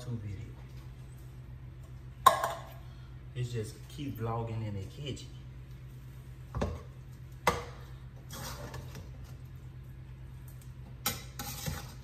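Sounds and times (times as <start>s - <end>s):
spoon scraping while stirring: 8.2s - 9.4s, 11.0s - 12.0s.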